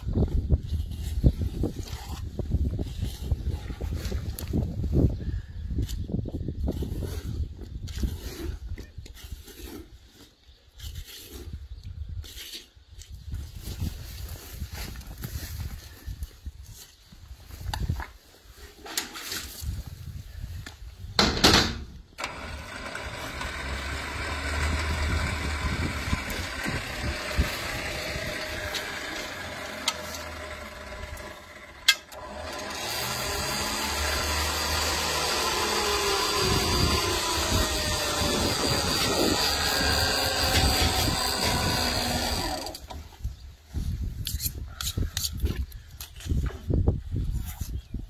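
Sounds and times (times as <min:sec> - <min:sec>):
motorised hoist running: 0:22.2 - 0:42.8.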